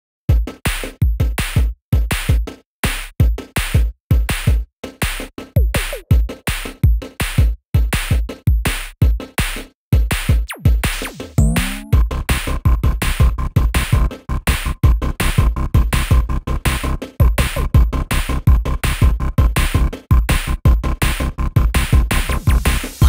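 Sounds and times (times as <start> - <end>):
electronic music with drum machine: 3.3 - 8.6, 10.2 - 12.1, 18.5 - 23.0
pitch sweeps: 11.4 - 12.0.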